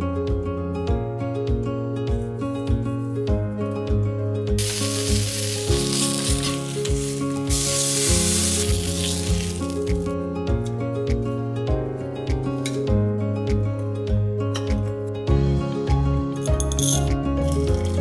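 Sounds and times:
fish sizzling in a frying pan: 4.6s - 10.1s.

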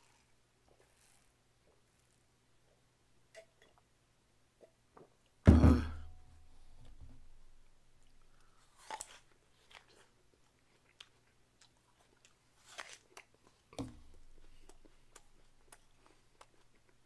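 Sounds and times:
apple being bitten and chewed: 0.0s - 2.2s, 8.1s - 17.0s.

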